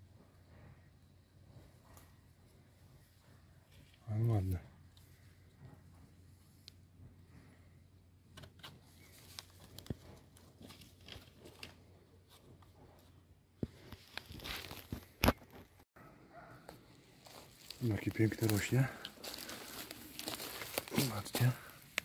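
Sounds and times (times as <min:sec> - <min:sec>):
dry leaves and twigs rustling: 0:08.8 - 0:12.3, 0:13.8 - 0:15.6, 0:16.7 - 0:22.0.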